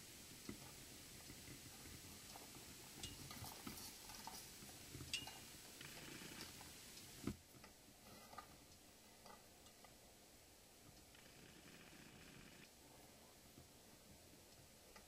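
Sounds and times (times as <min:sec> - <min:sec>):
faint clicks and knocks: 0:00.3 - 0:10.1.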